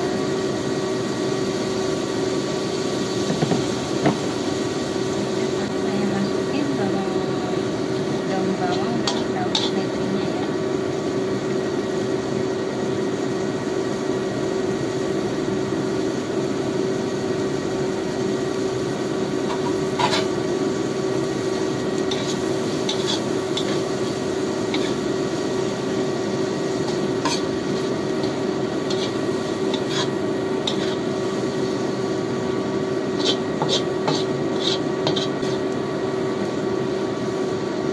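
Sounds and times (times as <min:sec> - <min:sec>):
steady hiss and hum: 0:01.4 - 0:12.5, 0:13.3 - 0:37.9
metal spatula scraping wok: 0:08.5 - 0:10.1, 0:19.4 - 0:20.4, 0:22.0 - 0:25.4, 0:26.7 - 0:31.3, 0:33.1 - 0:35.8.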